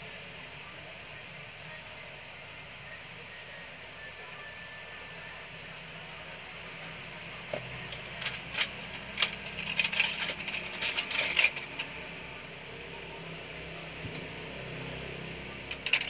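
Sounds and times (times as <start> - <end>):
small objects clicking and clinking: 7.6 - 11.9, 15.7 - 16.0.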